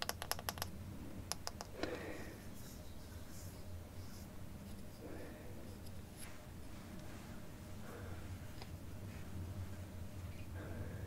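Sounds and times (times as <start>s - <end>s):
soft rustle: 2.4s - 10.6s.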